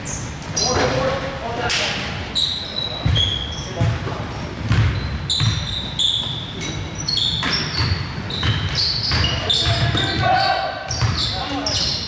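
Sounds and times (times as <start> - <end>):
sneakers squeaking: 0.0 - 12.0
basketball dribbling on gym floor: 3.0 - 6.4, 7.2 - 10.3, 10.9 - 12.0.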